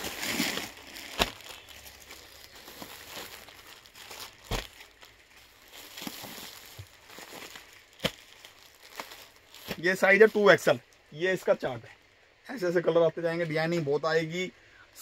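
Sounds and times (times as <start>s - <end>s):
plastic bags crinkling: 0.0s - 10.8s.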